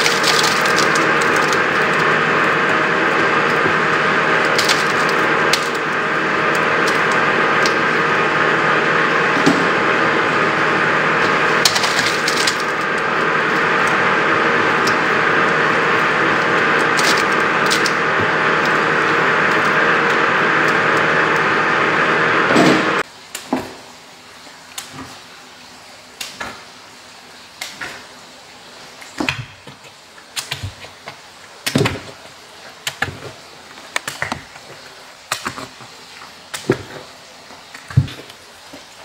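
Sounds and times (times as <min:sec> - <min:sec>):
factory machinery hum: 0:00.0 - 0:26.6.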